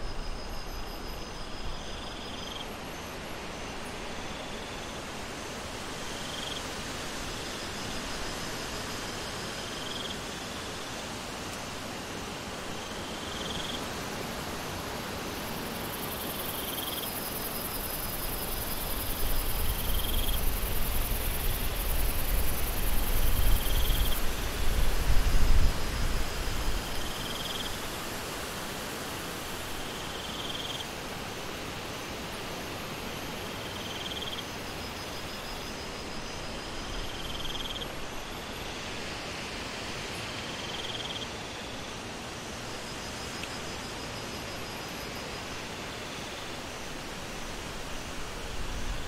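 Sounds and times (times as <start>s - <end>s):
pulsed insect trills: 0.0s - 5.0s, 15.2s - 39.4s, 40.1s - 49.0s.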